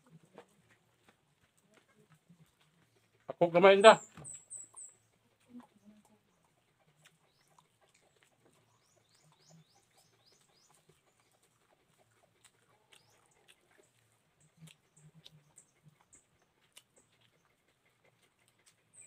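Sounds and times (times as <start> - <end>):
small bird chirping: 3.9 - 19.0.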